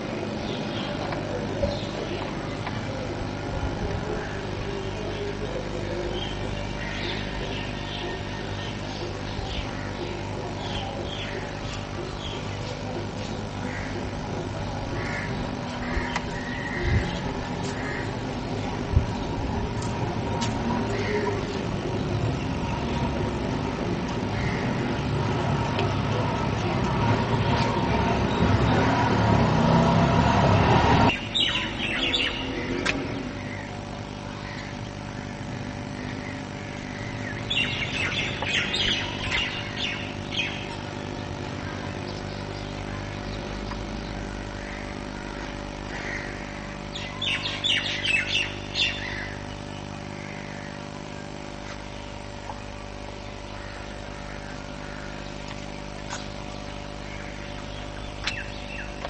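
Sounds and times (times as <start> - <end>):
birds chirping: 0.0 - 59.0
loud rumbling noise: 13.0 - 47.0.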